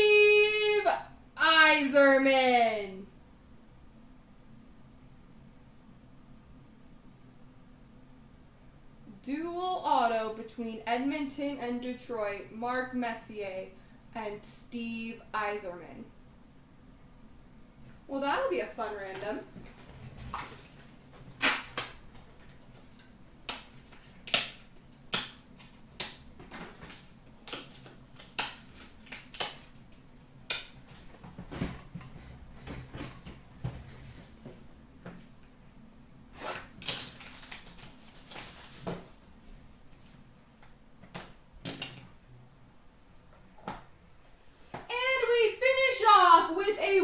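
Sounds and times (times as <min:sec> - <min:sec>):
packaging rustling: 0:19.6 - 0:24.7, 0:36.4 - 0:39.2.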